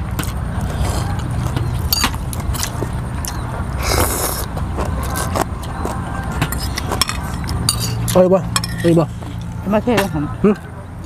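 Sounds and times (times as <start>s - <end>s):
people slurping noodles: 3.8s - 5.4s.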